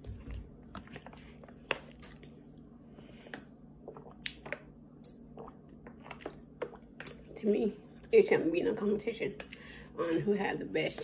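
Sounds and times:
person swallowing: 3.8 - 4.6, 5.2 - 6.9.

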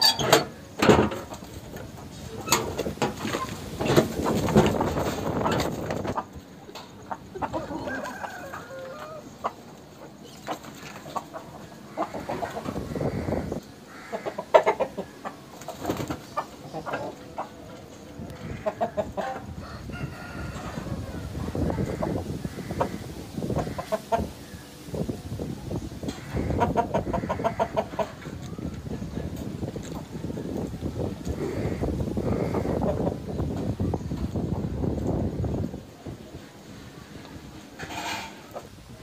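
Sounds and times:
chickens clucking: 0.0 - 39.0
rustling noise: 1.0 - 6.5.

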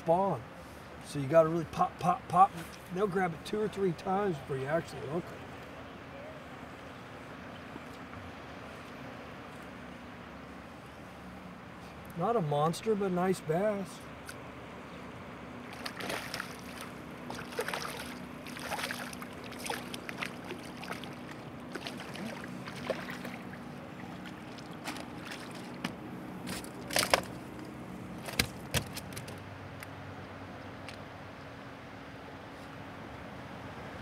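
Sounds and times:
steady low hum: 0.0 - 34.0
water sloshing: 15.6 - 29.5.

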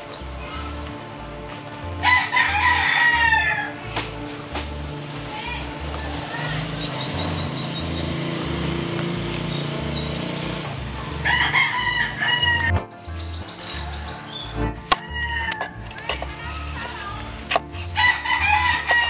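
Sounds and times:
rooster crowing: 2.0 - 3.7, 11.2 - 17.3, 17.9 - 19.0
small bird chirping: 3.6 - 11.5, 12.1 - 19.0.

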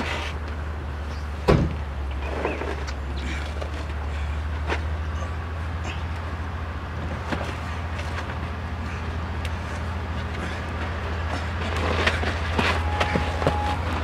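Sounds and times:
vehicle engine idling: 0.0 - 14.0
scuffs and knocks: 10.9 - 14.0.

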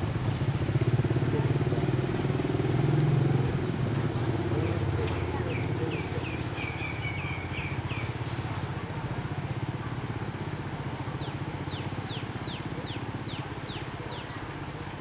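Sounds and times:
bird chirping: 5.2 - 8.2.

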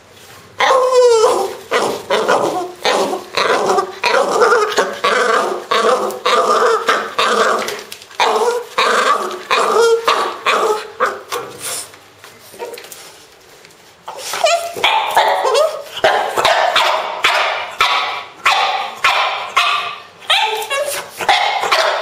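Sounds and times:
dog growling grunts and yelps: 0.6 - 11.6.

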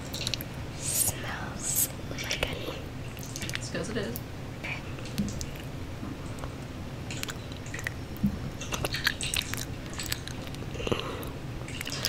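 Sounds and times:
lip smacks: 0.0 - 3.6, 7.1 - 12.0.

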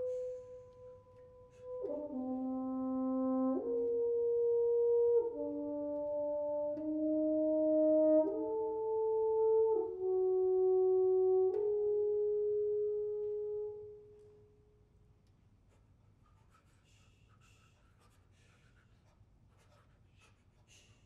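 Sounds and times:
french horns playing chords: 0.0 - 14.6.

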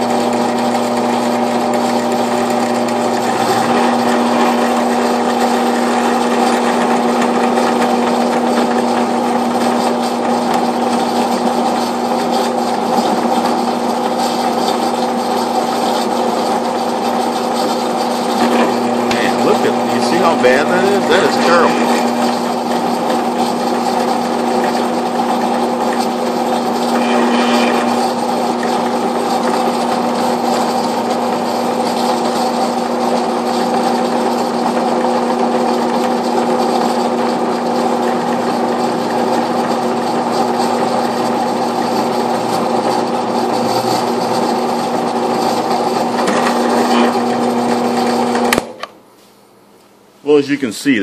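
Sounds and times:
drill press motor hum: 0.0 - 49.0
end mill cutting aluminum: 0.3 - 32.5.

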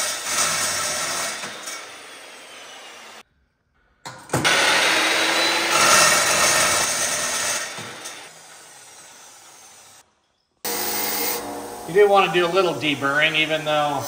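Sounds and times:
chop saw cutting metal tube: 0.0 - 3.2, 4.4 - 10.0.

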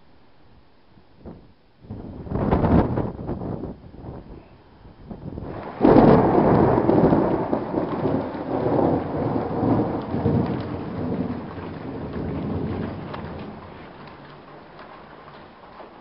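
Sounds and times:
thunder crack and rumble: 5.1 - 16.0
rain falling: 5.3 - 16.0.

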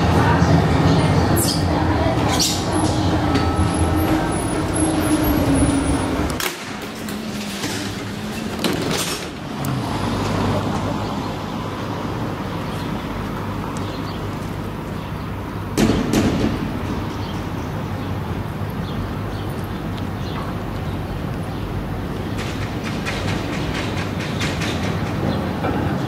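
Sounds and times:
tram running low hum: 0.0 - 26.0
tram wheels knocking on track: 15.7 - 17.4, 22.3 - 26.0
clicks inside tram car: 22.3 - 26.0.

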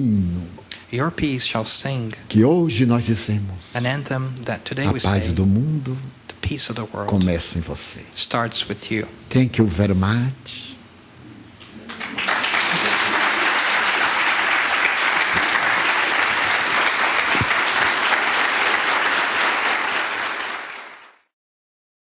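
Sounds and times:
audience applause: 11.9 - 21.3.

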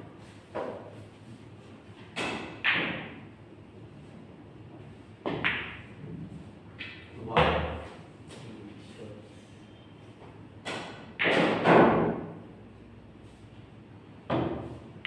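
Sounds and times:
cue tip hitting ball: 5.2 - 5.9.

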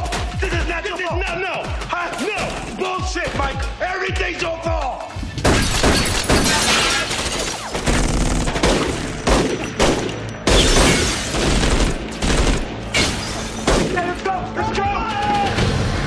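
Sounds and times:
heavy gunfire: 7.8 - 12.9.

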